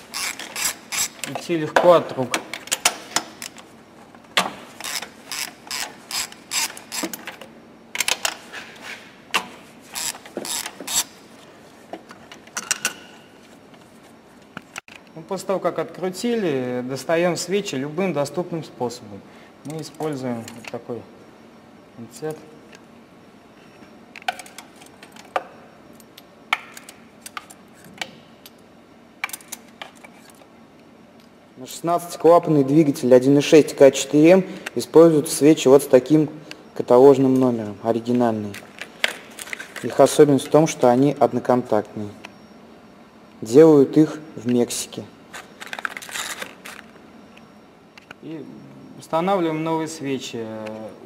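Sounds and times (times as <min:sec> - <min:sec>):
ratchet wrench clicking: 0:00.1 - 0:01.2, 0:04.8 - 0:07.2, 0:09.9 - 0:11.1.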